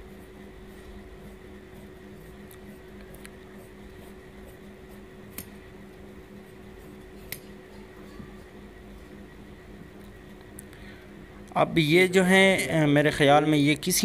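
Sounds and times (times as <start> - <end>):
shears cutting cloth: 0.0 - 5.6
steady low hum: 0.0 - 14.0.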